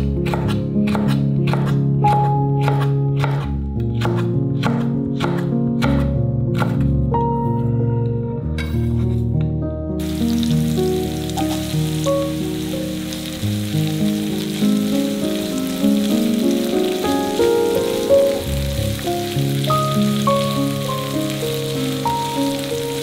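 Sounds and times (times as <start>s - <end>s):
background music held notes: 0.0s - 23.0s
oil sizzling in a pan: 10.0s - 23.0s.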